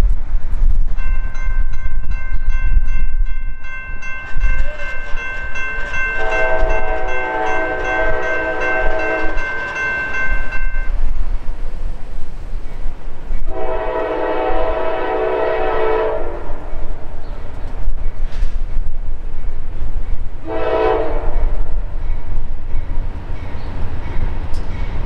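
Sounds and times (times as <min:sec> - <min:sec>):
wind rumble on microphone: 0:00.0 - 0:25.0
railroad crossing bell ringing: 0:01.0 - 0:11.0
locomotive horn chord: 0:06.2 - 0:09.9, 0:13.5 - 0:16.6, 0:20.4 - 0:21.5.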